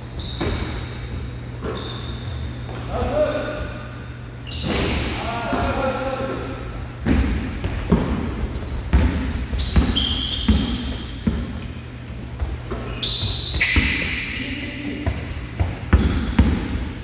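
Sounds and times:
sneakers squeaking: 0.0 - 17.0
basketball bouncing on gym floor: 0.1 - 3.0, 7.0 - 17.0.

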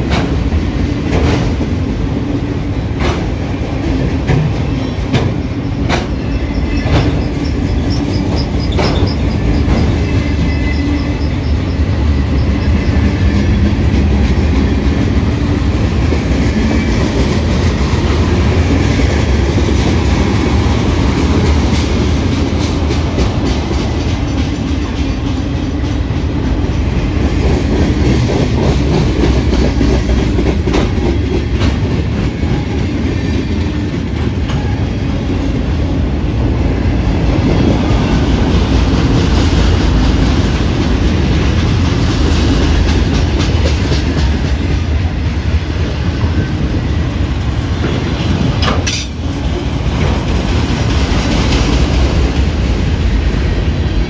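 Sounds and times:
freight train rolling past: 0.0 - 54.0
faint high wheel squeal: 4.7 - 13.1.

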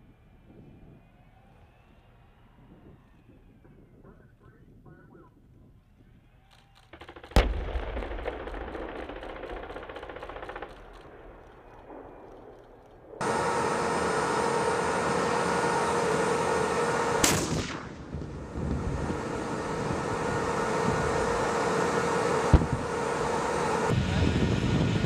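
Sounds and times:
tank turbine engines whining: 0.0 - 25.0
machine-gun burst: 6.8 - 12.6
tank cannon blast: 7.0 - 13.3, 17.2 - 18.8.

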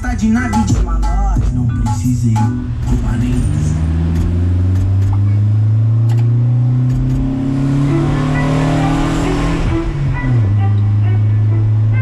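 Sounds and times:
pickup engine accelerating: 2.2 - 12.0.

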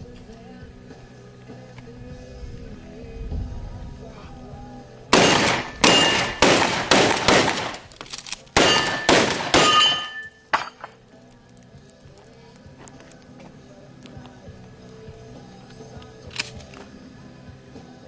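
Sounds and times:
shotgun shots: 5.1 - 8.0, 8.6 - 10.7.

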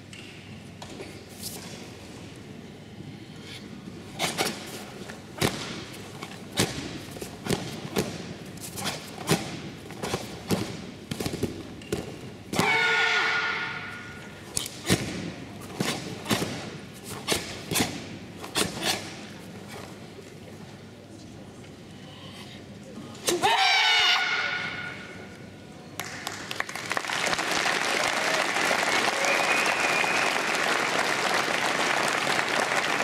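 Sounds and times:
group kiai shout: 12.6 - 14.2.

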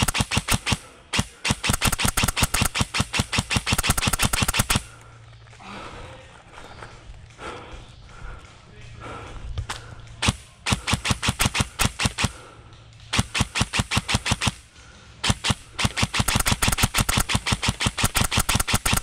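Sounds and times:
airsoft rifle rapid fire: 0.0 - 4.9, 10.2 - 12.5, 13.1 - 19.0.

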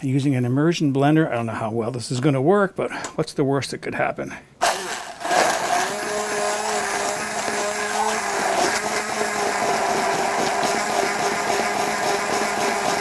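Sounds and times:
immersion blender running: 4.6 - 13.0.

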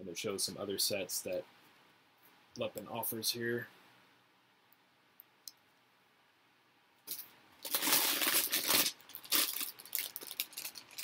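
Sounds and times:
plastic bags crinkling: 7.1 - 11.0.

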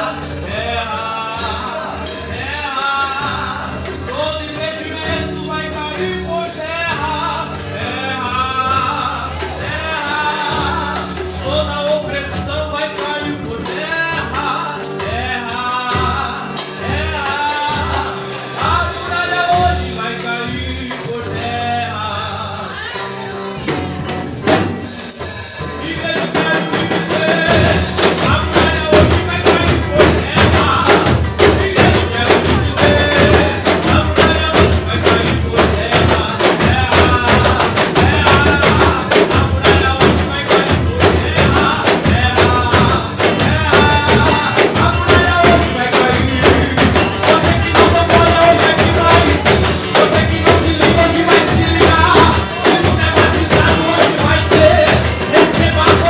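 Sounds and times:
drum beat: 0.0 - 56.0
man singing through microphone: 0.0 - 56.0
tambourines shaken and struck: 0.0 - 56.0.

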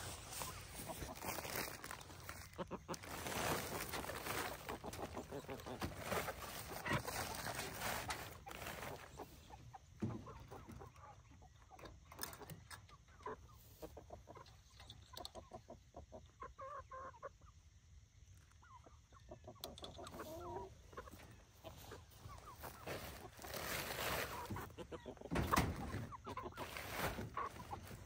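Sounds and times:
chickens clucking: 0.0 - 28.0.

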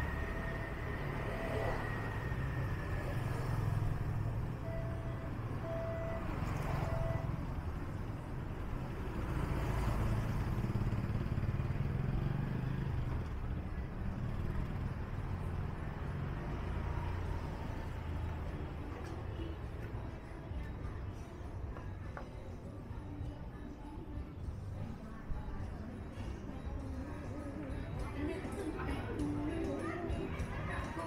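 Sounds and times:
cars and motorcycles passing: 0.0 - 31.0
short beeps: 4.5 - 7.4.

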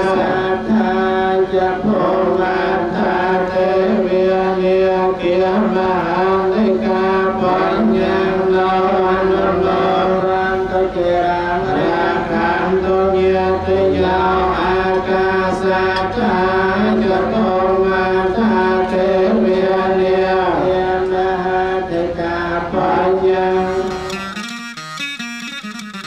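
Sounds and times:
man chanting into a microphone: 0.0 - 24.1
plucked-string music: 23.6 - 26.0.

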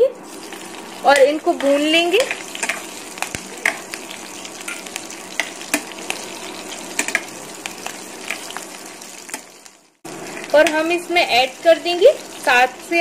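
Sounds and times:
spices sizzling in hot oil: 0.0 - 13.0.

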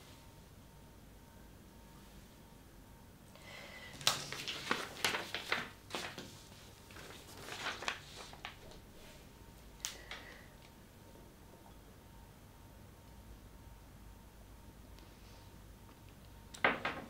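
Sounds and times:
paper sheets rustling: 4.0 - 9.3.

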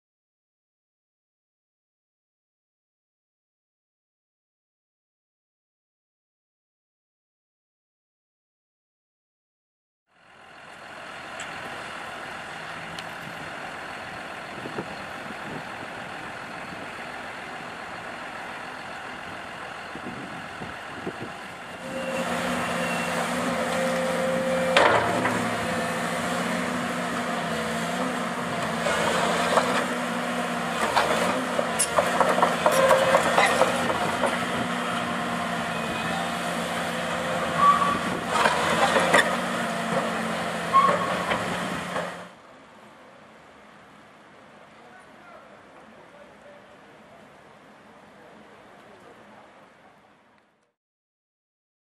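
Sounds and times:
excavator diesel engine running: 10.2 - 44.6.

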